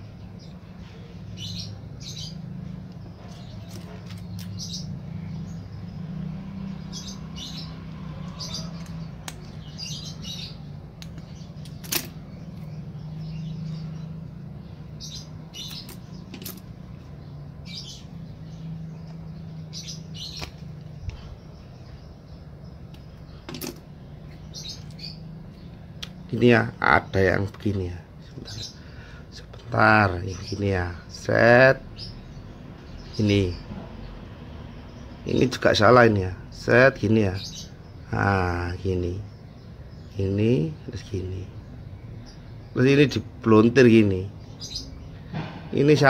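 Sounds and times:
steady low hum: 0:00.0 - 0:35.3
small birds chirping: 0:00.0 - 0:46.0.

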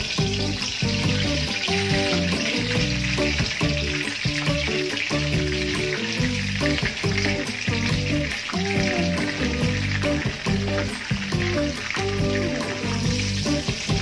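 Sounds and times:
background music: 0:00.0 - 0:14.0
oil sizzling in a wok: 0:00.0 - 0:14.0.

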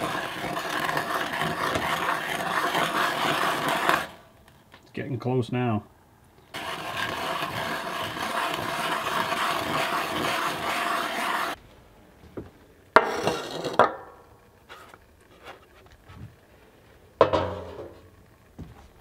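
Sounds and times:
sap boiling in a pot: 0:00.0 - 0:04.3, 0:06.5 - 0:11.6.

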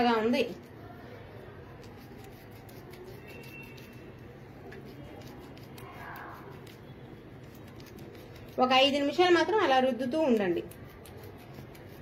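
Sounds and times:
lemon scrubbing on skin: 0:01.7 - 0:09.2, 0:10.0 - 0:12.0.

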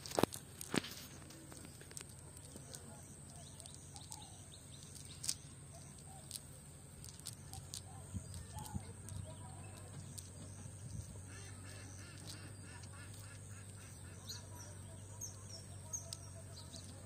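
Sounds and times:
net clicks and rustles: 0:00.0 - 0:13.9
steady low hum: 0:00.0 - 0:17.0
faint bird chirps: 0:00.9 - 0:06.4
ducks quacking: 0:11.2 - 0:14.5.

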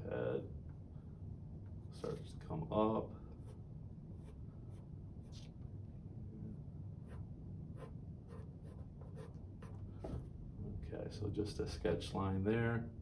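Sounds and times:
pencil scratching on paper: 0:07.0 - 0:07.2, 0:07.8 - 0:10.2.

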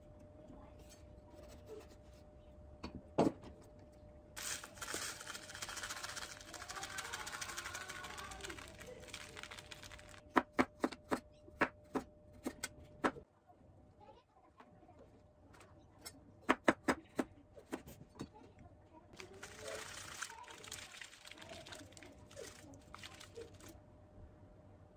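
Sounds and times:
seasoning packet crinkling: 0:04.4 - 0:10.2, 0:19.2 - 0:23.8.

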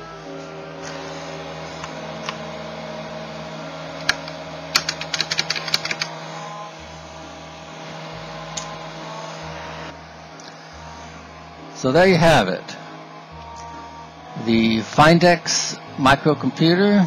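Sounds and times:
steady background hum: 0:00.0 - 0:17.0
keyboard key clicks: 0:04.8 - 0:06.1.

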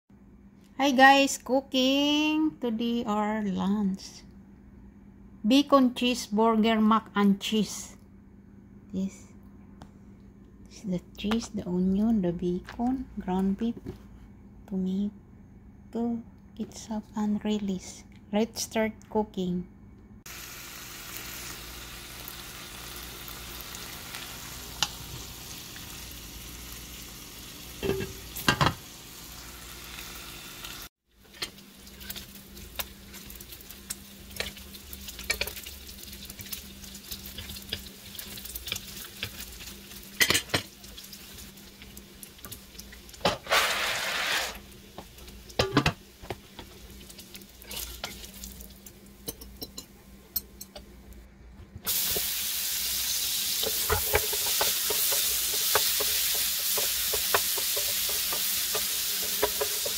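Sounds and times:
bacon sizzling in a frying pan: 0:20.3 - 0:49.3, 0:51.9 - 0:59.9
utensil knocking on pan: 0:53.6 - 0:59.9.

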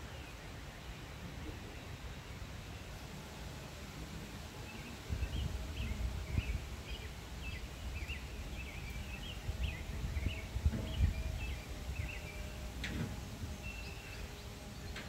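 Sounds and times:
wind gusting on microphone: 0:05.0 - 0:15.0.

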